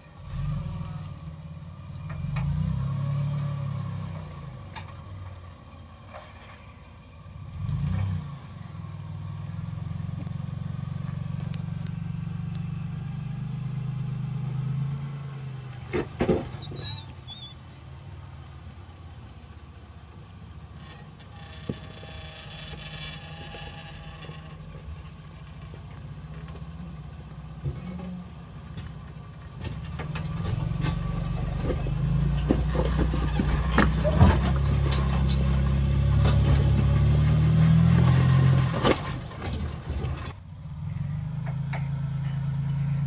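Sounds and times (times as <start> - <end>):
truck engine at low revs: 0.0 - 43.0
tyres crunching on rock: 29.6 - 37.2.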